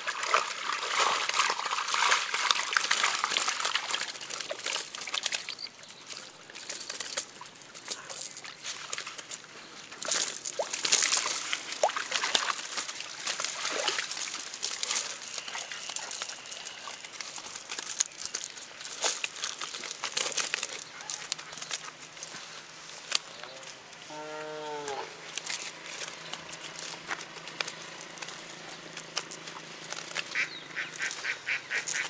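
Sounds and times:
fish splashing in water: 0:00.0 - 0:22.3
water dripping: 0:00.0 - 0:22.3
wet net crackling: 0:00.0 - 0:23.4, 0:24.9 - 0:32.0.

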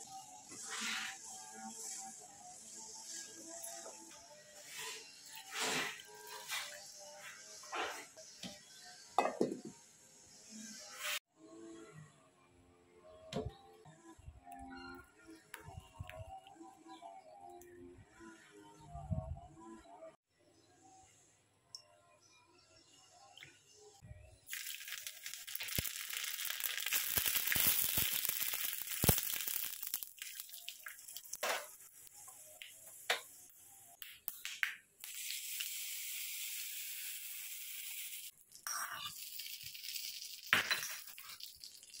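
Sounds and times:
hot oil sizzling and popping: 0:24.5 - 0:42.0.

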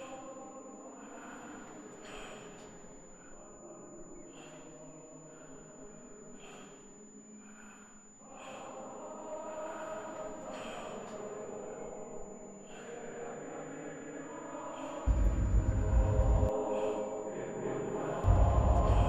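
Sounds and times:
person breathing heavily: 0:04.3 - 0:08.9, 0:18.2 - 0:19.0
low sustained drone: 0:15.1 - 0:19.0.

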